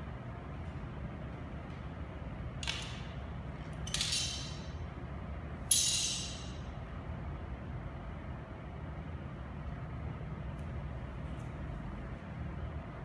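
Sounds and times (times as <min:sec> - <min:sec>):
steady low hum: 0:00.0 - 0:13.0
sharp ringing clinks: 0:03.9 - 0:04.8, 0:05.7 - 0:06.6.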